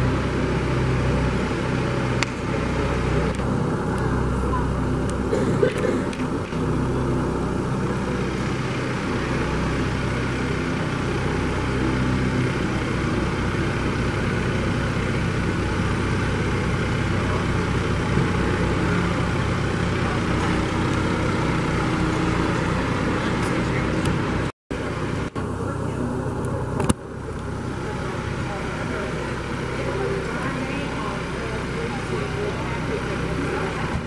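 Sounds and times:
tractor diesel engine running: 0.0s - 34.0s.

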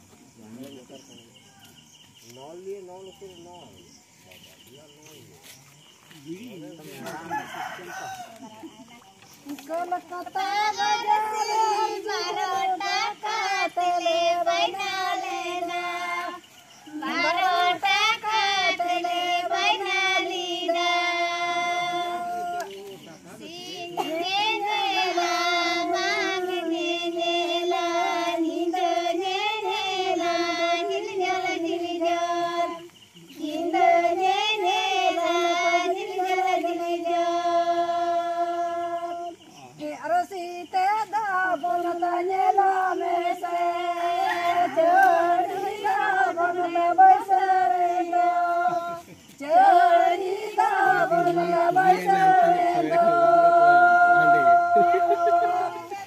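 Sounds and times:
women singing in high voices: 9.4s - 56.0s.

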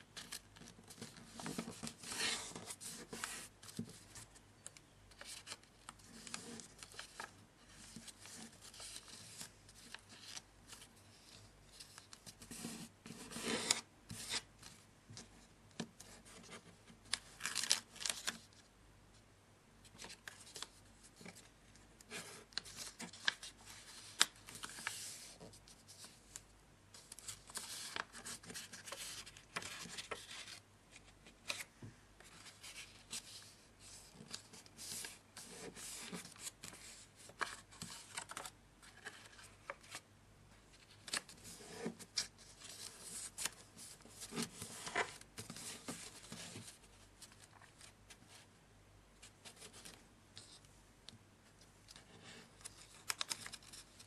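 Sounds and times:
paper rustling: 0.2s - 4.4s, 16.4s - 18.5s, 20.0s - 26.4s, 27.0s - 40.0s, 40.7s - 48.4s, 51.9s - 54.0s.

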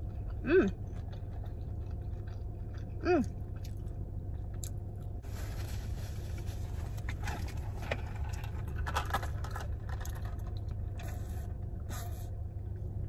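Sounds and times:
person chewing food: 0.0s - 5.2s
steady low hum: 0.0s - 13.0s.

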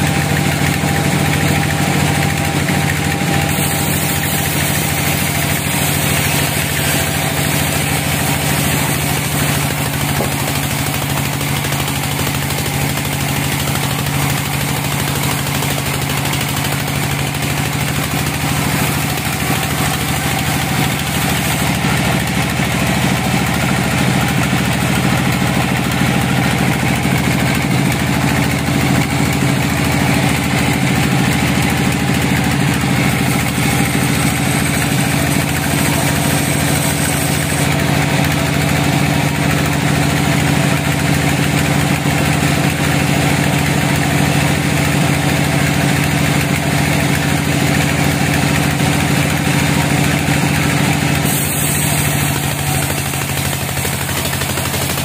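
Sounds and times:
band saw cutting log: 0.0s - 55.0s.

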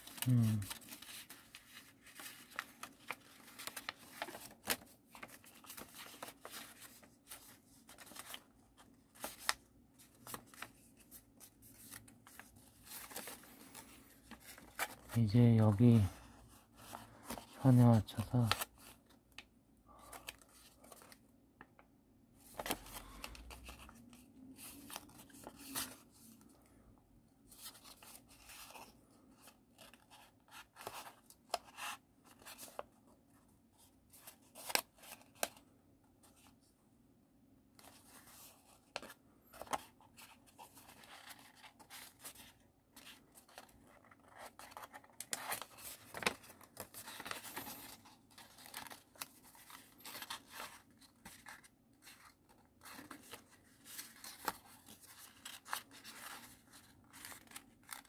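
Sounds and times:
paper rustling and crackling: 0.0s - 19.1s, 37.8s - 58.0s.

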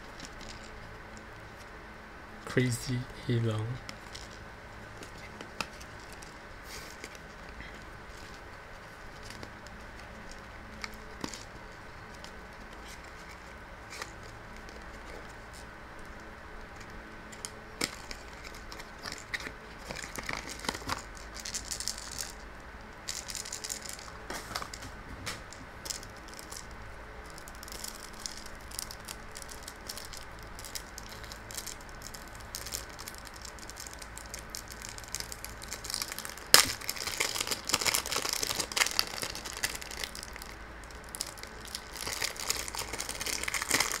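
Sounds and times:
plastic wrap crinkling and tearing: 17.4s - 22.4s, 23.0s - 44.0s.

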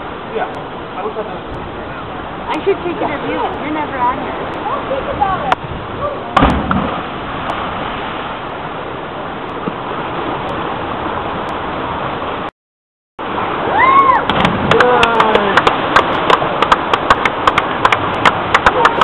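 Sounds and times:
people's voices: 14.7s - 15.7s.

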